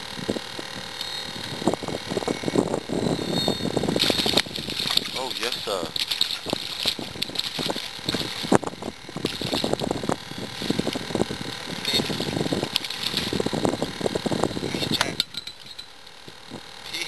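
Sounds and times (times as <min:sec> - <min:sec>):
fishing reel cranking: 0:00.0 - 0:17.0
fish splashing: 0:03.9 - 0:13.9.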